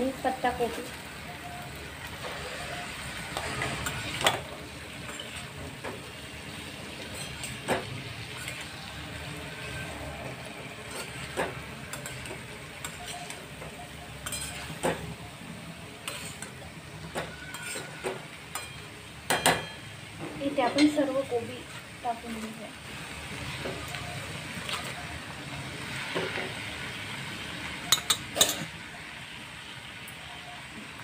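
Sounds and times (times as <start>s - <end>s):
food sizzling in a pan: 0.0s - 31.0s
spatula scraping a pan: 2.0s - 15.3s, 16.0s - 19.9s.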